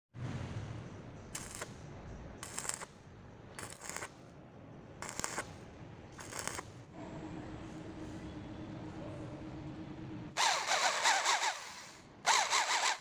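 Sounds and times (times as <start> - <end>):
welding arc crackling: 1.3 - 1.8, 2.4 - 2.9, 3.6 - 4.2, 5.0 - 5.6, 6.2 - 6.7.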